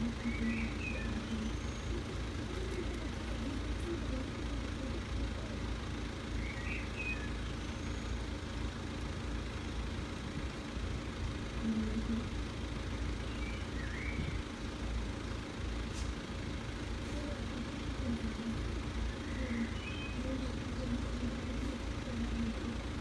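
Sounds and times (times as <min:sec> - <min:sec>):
low rumble of road traffic: 0:00.0 - 0:23.0.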